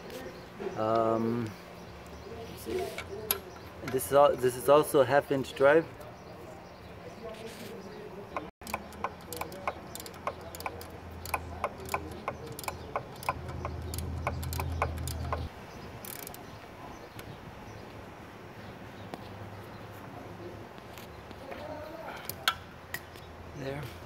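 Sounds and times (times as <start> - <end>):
socket ratchet clicking: 8.6 - 16.4.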